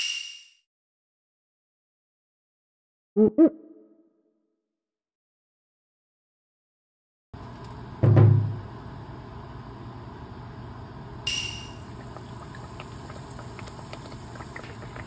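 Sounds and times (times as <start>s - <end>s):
cutlet deep-frying in oil: 11.3s - 15.0s.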